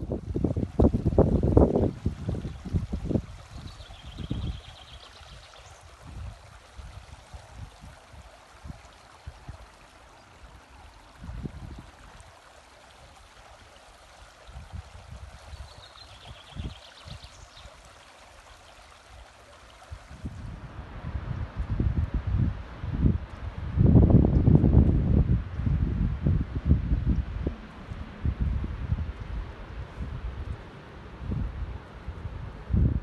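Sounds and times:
wind buffeting microphone: 0:00.0 - 0:09.7, 0:11.1 - 0:12.2, 0:14.4 - 0:17.6, 0:19.9 - 0:33.0
stream babbling over stones: 0:00.0 - 0:20.6.

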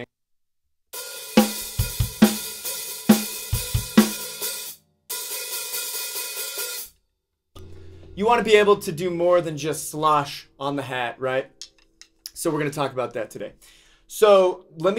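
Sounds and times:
snare drum: 0:01.0 - 0:06.9.

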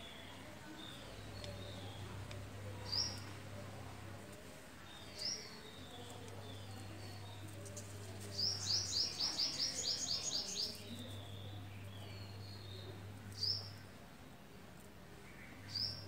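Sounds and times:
small bird chirping: 0:04.9 - 0:13.9.

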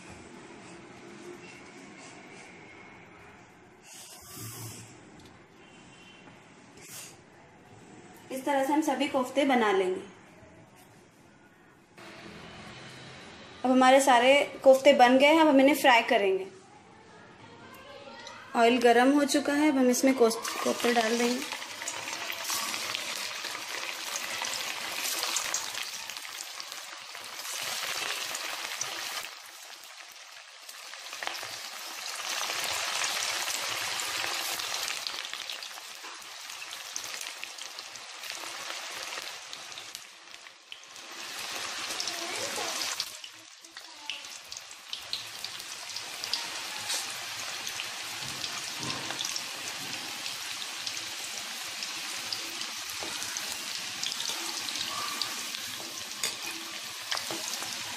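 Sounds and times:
meatballs deep-frying in oil: 0:20.0 - 0:57.9.

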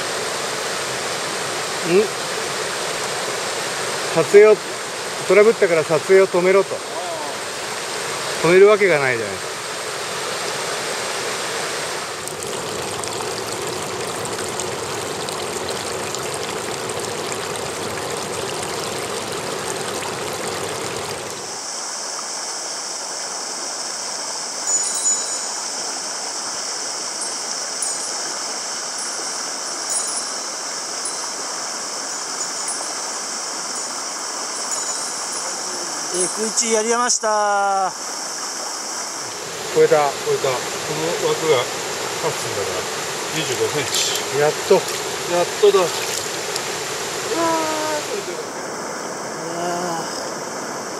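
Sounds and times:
hissy running water: 0:00.0 - 0:50.9
stream rushing over rocks: 0:00.0 - 0:50.9.

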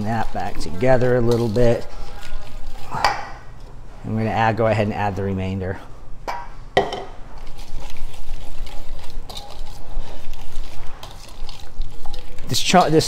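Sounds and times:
whisk stirring and scraping bowl: 0:00.0 - 0:03.0, 0:07.3 - 0:13.0.

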